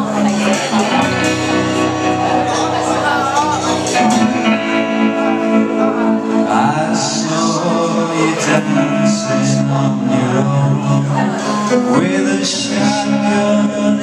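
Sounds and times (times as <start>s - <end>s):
drum kit: 0.0s - 8.7s
electric guitar: 0.0s - 14.0s
man singing into microphone: 3.6s - 14.0s.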